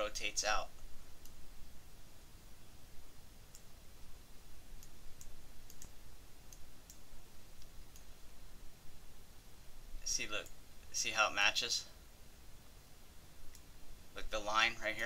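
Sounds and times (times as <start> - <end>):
low steady hum: 0.0 - 15.0
computer mouse clicking: 4.8 - 8.1.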